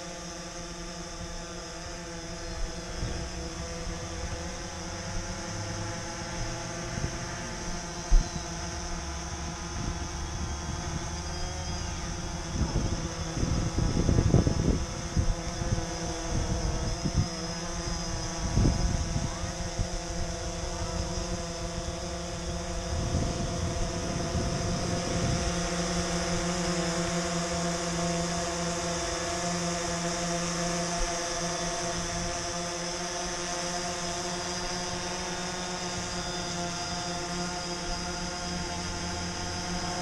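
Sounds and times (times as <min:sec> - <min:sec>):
quadcopter drone buzzing: 0:00.0 - 0:40.0
wind buffeting microphone: 0:02.5 - 0:26.6.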